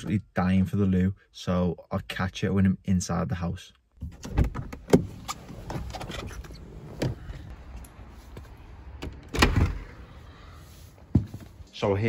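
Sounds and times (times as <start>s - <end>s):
doors knocking and clunking: 4.0s - 7.8s, 8.8s - 10.0s.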